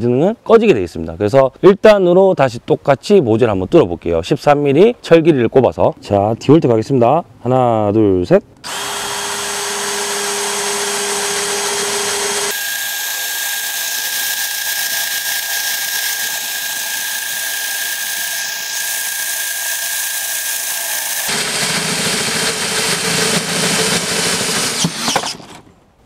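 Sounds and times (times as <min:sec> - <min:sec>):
drill motor whining: 0:08.6 - 0:25.7.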